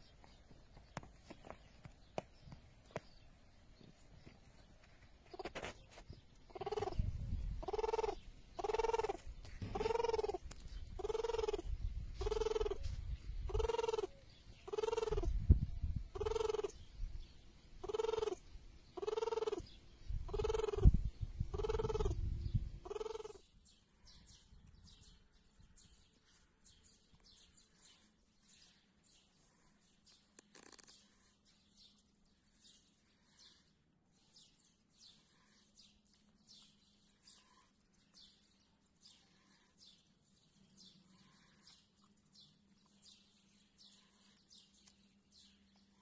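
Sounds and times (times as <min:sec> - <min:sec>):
tortoise grunting: 0:06.5 - 0:10.4, 0:11.0 - 0:15.3, 0:16.1 - 0:16.8, 0:17.8 - 0:18.4, 0:19.0 - 0:22.2, 0:22.8 - 0:23.4.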